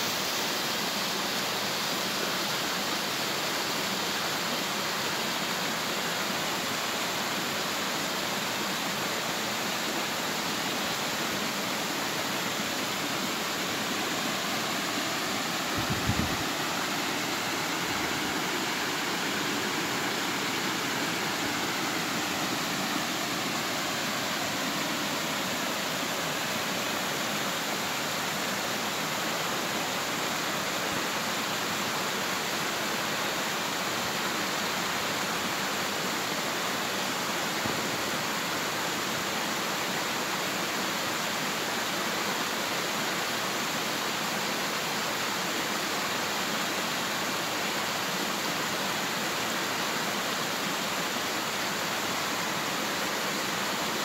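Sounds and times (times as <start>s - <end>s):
waterfall rushing over rocks: 0.0s - 54.0s.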